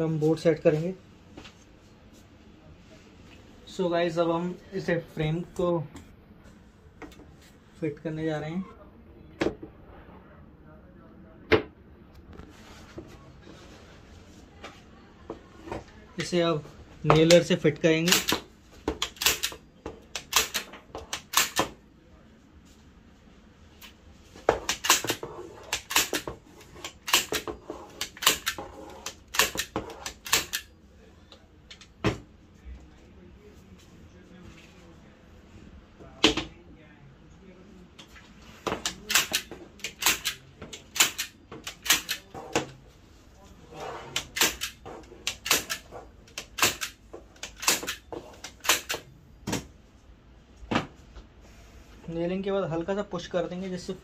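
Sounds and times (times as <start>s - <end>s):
nailer firing sharp clicks: 18.0s - 21.8s, 24.7s - 26.3s, 26.9s - 30.6s, 38.8s - 42.2s, 44.2s - 45.8s, 46.4s - 49.0s.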